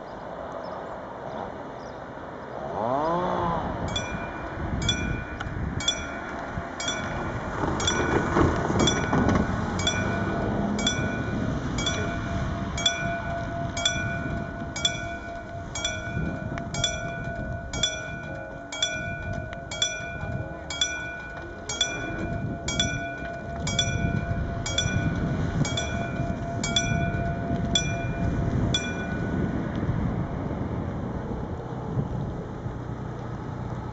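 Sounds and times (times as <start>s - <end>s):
low rumble: 3.7s - 33.9s
level crossing warning bell: 3.8s - 30.0s.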